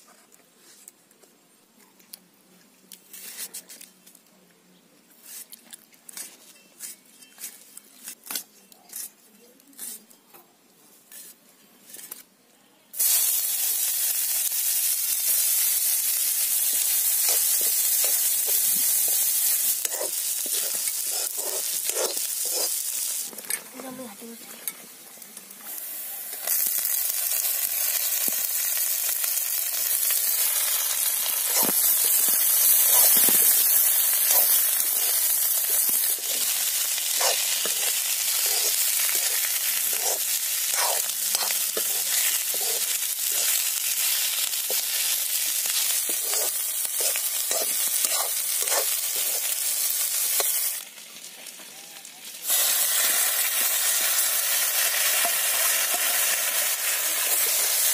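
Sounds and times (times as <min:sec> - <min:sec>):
vegetables sizzling in hot oil: 0:13.0 - 0:57.9
metal spatula scraping pan: 0:31.5 - 0:43.6, 0:46.1 - 0:49.6.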